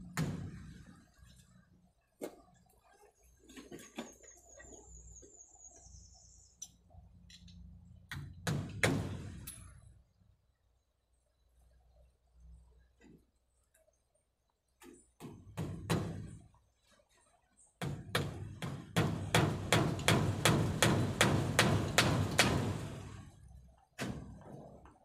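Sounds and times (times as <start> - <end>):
hammer striking wooden post: 17.8 - 22.9.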